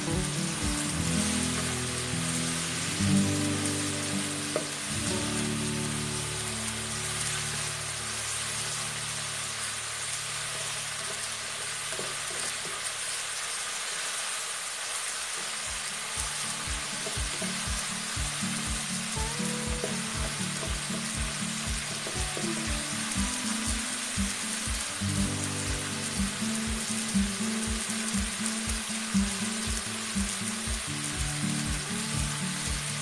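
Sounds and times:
background music with beat: 0.0 - 7.5, 15.7 - 33.0
vegetables sizzling in a pan: 0.0 - 33.0.

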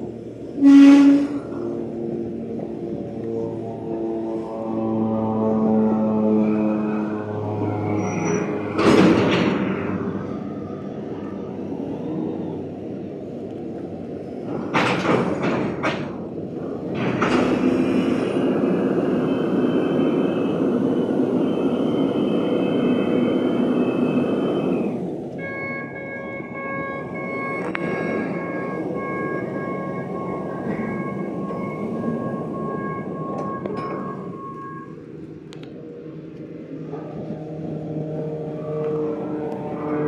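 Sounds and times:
container handler engine running: 1.5 - 40.0
metal clanks and bangs: 8.7 - 9.9.

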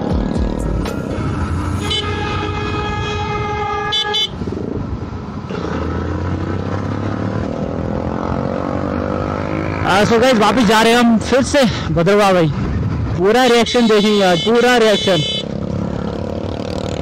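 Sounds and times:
vehicle horn: 1.7 - 4.4, 13.7 - 15.6.

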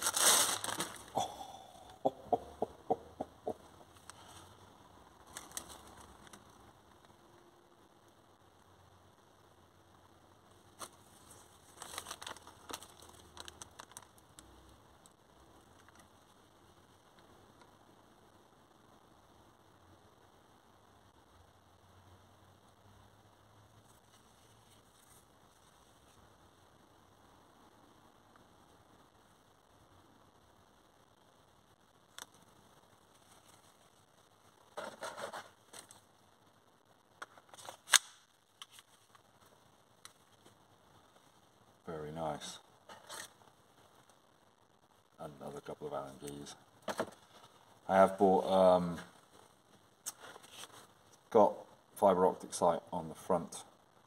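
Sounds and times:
plastic packaging crinkling: 0.0 - 1.2, 5.2 - 6.4, 10.8 - 14.4.

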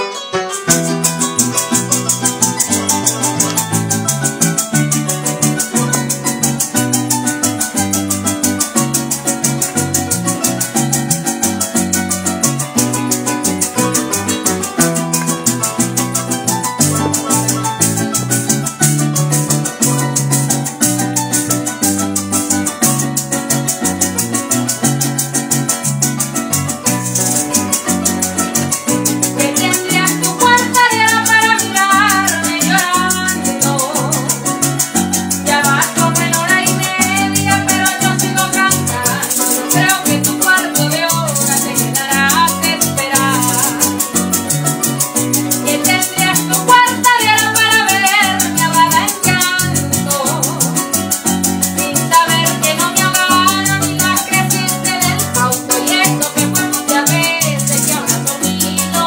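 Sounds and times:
concert harp: 0.0 - 59.0
cuatro strumming: 0.0 - 59.0
maracas shaking: 0.1 - 59.0
electric bass: 0.6 - 59.0
woman singing: 29.1 - 44.2, 45.5 - 59.0.

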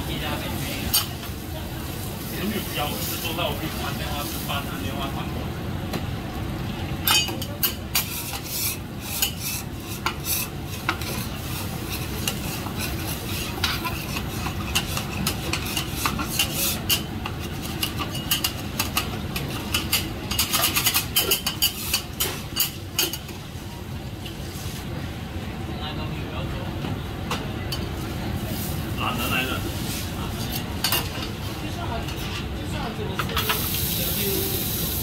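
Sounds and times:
metal spatulas scraping on griddle: 7.1 - 23.3.

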